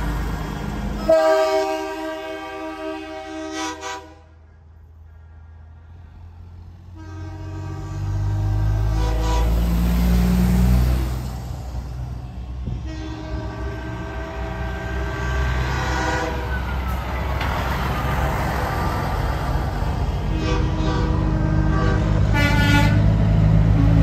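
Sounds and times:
diesel trucks rumbling past: 0:00.0 - 0:24.0
truck air horn blasts: 0:01.0 - 0:04.5, 0:06.9 - 0:10.1, 0:12.6 - 0:16.6, 0:20.2 - 0:24.0.

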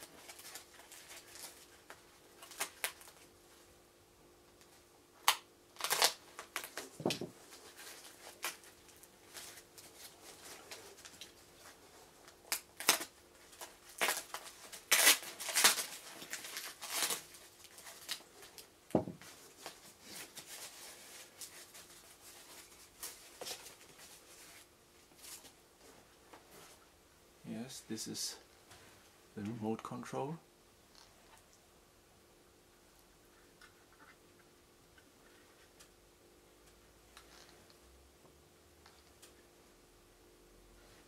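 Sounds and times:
packing wrap rustling and crinkling: 0:00.0 - 0:03.3, 0:05.2 - 0:25.6.

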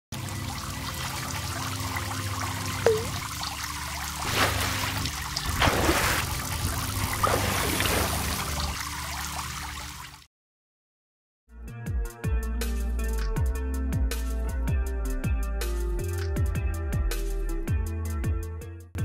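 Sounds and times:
water trickling: 0:00.2 - 0:10.2
water droplet plop: 0:02.9 - 0:03.2.

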